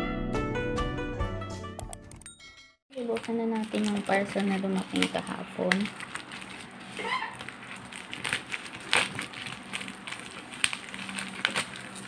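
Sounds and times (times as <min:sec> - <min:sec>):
plastic mailer crinkling: 0:03.0 - 0:12.0.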